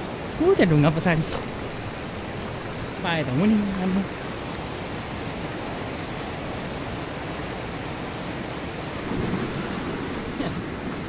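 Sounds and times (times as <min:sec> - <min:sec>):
river rushing over rocks: 0:00.0 - 0:11.0
person splashing into water: 0:09.0 - 0:10.8.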